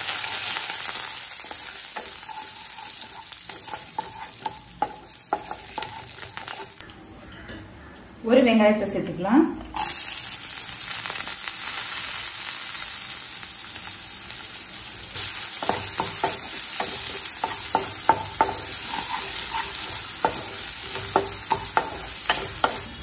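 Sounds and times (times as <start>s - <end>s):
onion sizzling in hot oil: 0.0s - 6.8s, 9.7s - 23.0s
spatula scraping and tapping pan: 1.4s - 6.8s, 15.6s - 23.0s.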